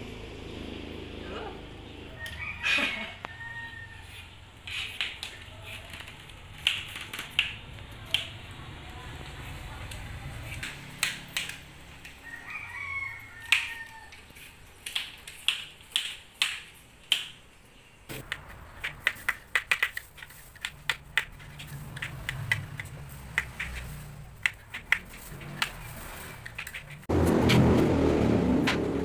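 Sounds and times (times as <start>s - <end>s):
vegetable peeler scraping: 18.8s - 27.1s.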